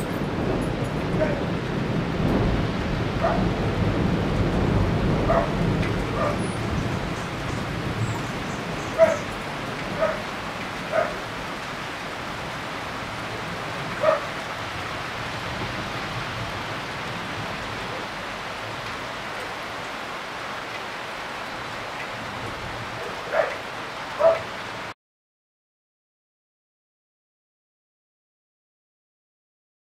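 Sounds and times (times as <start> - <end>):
rain hiss: 0.0 - 25.0
dog barking: 1.2 - 1.5, 3.2 - 3.5, 5.2 - 6.5, 8.9 - 9.3, 9.9 - 10.3, 10.9 - 11.2, 14.0 - 14.4, 22.9 - 23.6, 24.2 - 24.5.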